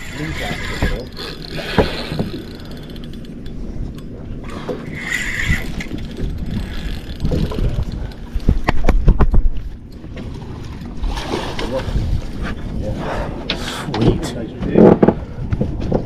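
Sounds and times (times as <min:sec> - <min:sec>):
fishing reel cranking: 0:00.0 - 0:08.3.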